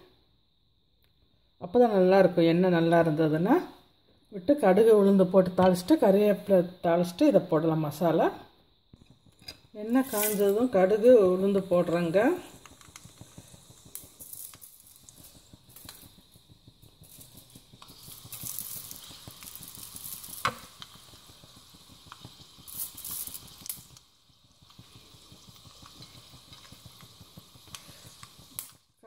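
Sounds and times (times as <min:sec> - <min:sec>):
seeds sizzling in hot oil: 0:04.4 - 0:29.0
seeds popping and crackling: 0:09.0 - 0:29.0.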